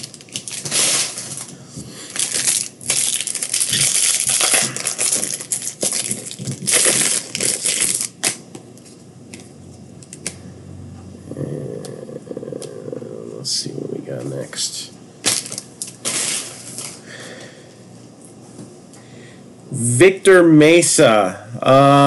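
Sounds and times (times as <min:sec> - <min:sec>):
foil wrapper crinkling: 0:00.0 - 0:08.4, 0:15.3 - 0:17.0.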